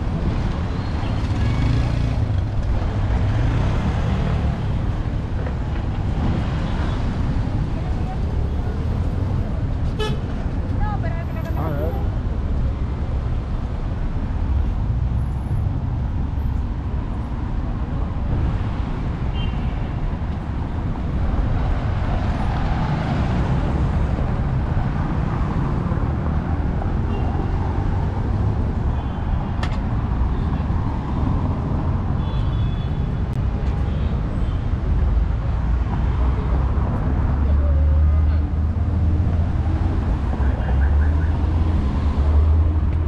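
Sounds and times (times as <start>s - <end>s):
cars driving past: 34.8s - 43.0s.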